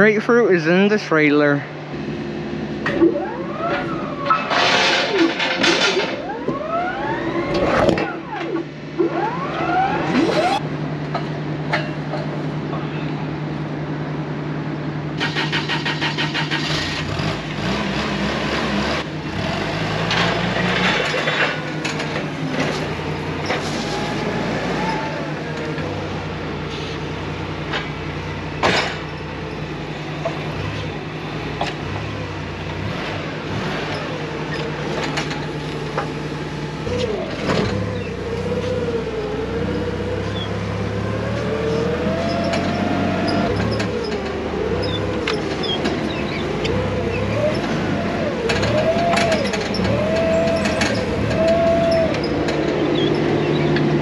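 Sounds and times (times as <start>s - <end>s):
knocks and clanks: 2.8s - 6.7s, 10.4s - 12.9s, 19.8s - 26.8s, 27.6s - 30.9s, 31.5s - 38.8s, 41.3s - 54.0s
vehicle engine running: 7.9s - 54.0s.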